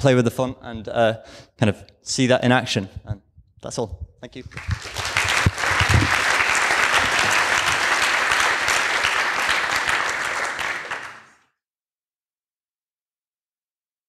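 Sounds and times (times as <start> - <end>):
audience applauding: 4.5 - 11.4.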